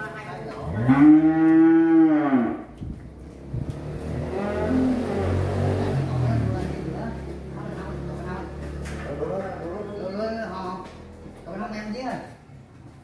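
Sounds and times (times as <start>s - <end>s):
cow mooing: 0.6s - 2.7s, 4.2s - 5.5s.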